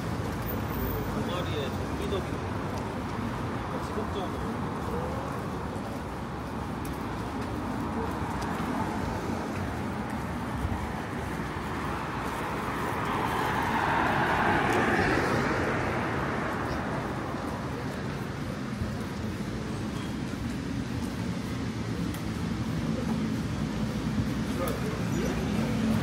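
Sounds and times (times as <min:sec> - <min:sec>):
steady traffic hum: 0:00.0 - 0:26.0
vehicle passing close: 0:11.2 - 0:17.8.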